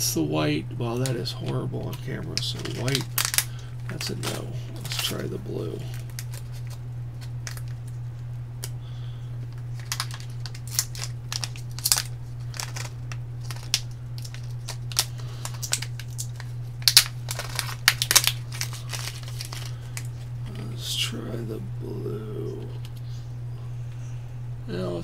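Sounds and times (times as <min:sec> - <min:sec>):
steady low hum: 0:00.0 - 0:25.0
plastic bag crinkling: 0:01.8 - 0:08.0, 0:09.5 - 0:20.3.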